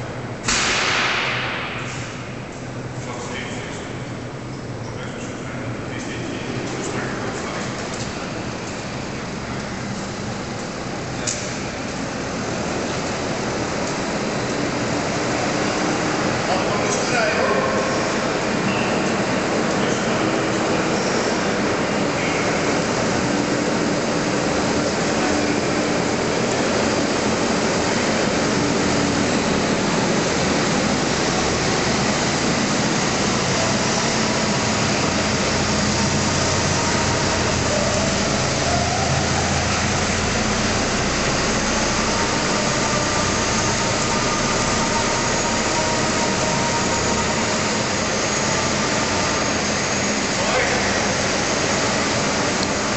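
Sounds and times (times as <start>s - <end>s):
factory hall hiss: 0.0s - 52.9s
tractor engine rumble: 17.8s - 52.9s.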